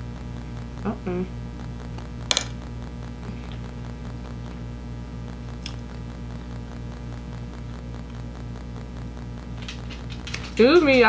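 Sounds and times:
low hum with faint pulse: 0.0s - 11.0s.

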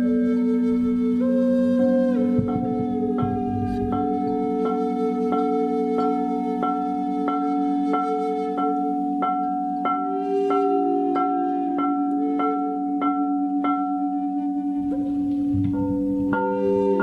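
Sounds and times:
singing bowls droning: 0.0s - 17.0s
bell-like note struck: 14.8s - 17.0s.

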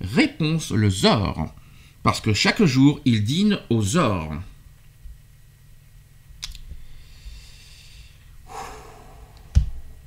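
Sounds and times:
man breathing hard through nose: 6.7s - 10.0s.

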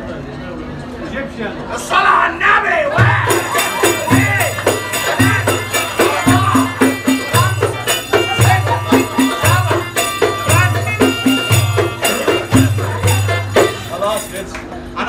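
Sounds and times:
frame drum strikes: 3.0s - 14.3s
tambourine jingles: 3.2s - 14.5s
folk music melody: 3.3s - 14.4s.

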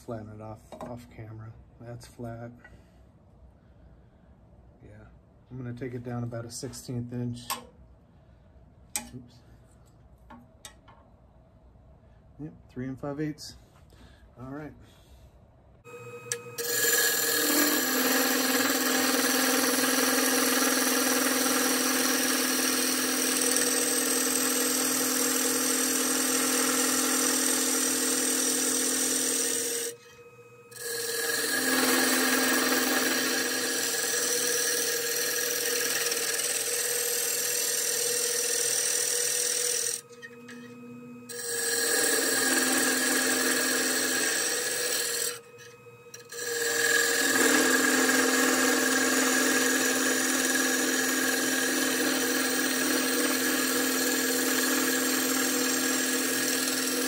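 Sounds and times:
lathe humming: 15.9s - 57.0s
turning tool cutting wood: 15.9s - 57.0s.

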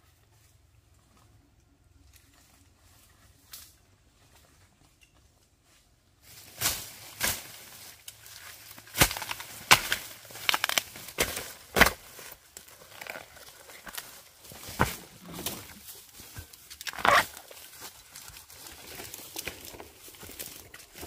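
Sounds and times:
rustling: 0.2s - 21.0s
sharp knocks and crunches: 8.6s - 21.0s.

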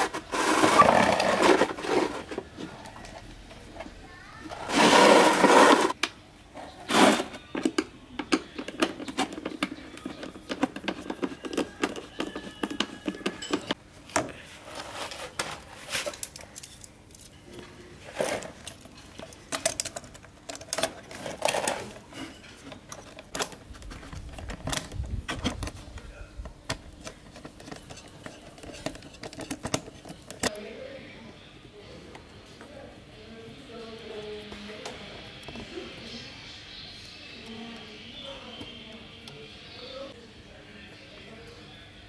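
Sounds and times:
plastic parts clicking and scraping: 0.0s - 3.9s, 6.6s - 17.4s, 18.0s - 30.6s.

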